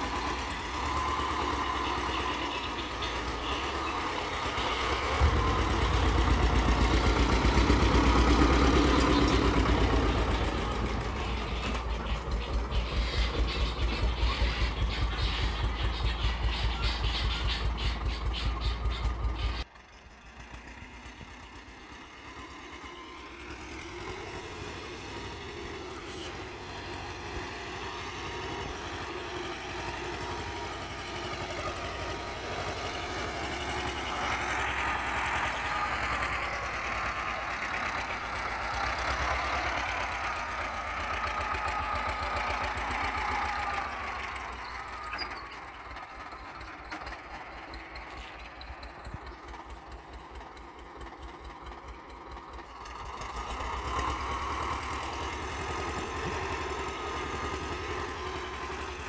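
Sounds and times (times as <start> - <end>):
tractor diesel engine thudding: 0.0 - 19.7, 23.3 - 59.0.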